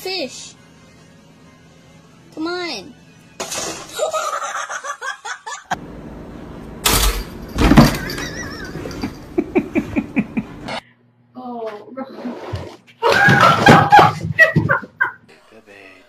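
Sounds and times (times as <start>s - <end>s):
person laughing: 4.0s - 5.8s, 8.0s - 10.8s.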